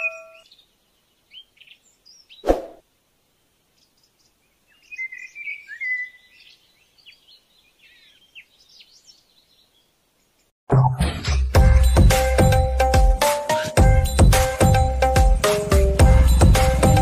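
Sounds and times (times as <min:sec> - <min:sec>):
small birds chirping: 0:00.0 - 0:02.8, 0:03.6 - 0:10.5.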